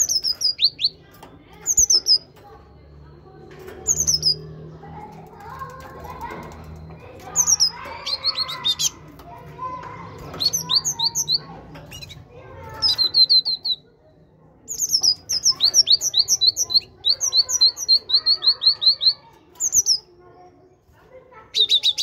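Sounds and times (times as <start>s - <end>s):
great tit singing: 0.0s - 2.7s, 3.8s - 4.6s, 6.0s - 14.0s, 14.6s - 20.1s, 21.4s - 22.0s.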